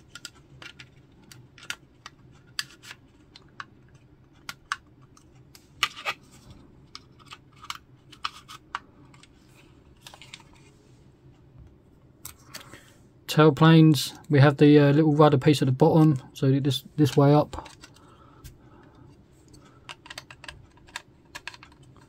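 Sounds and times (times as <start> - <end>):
plastic parts clicking and tapping: 0.0 - 9.4, 17.0 - 22.0.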